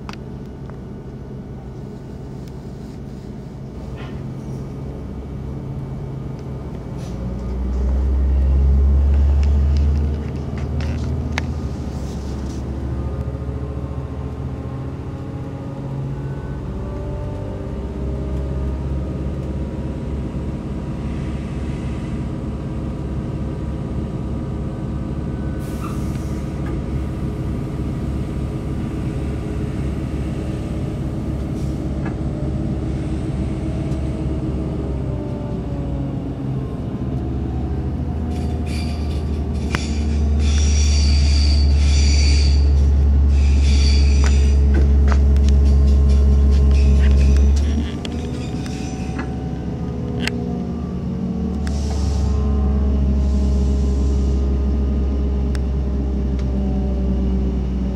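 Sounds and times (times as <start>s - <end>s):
train rumble inside carriage: 0.0s - 57.9s
train wheel squeal: 38.3s - 49.6s.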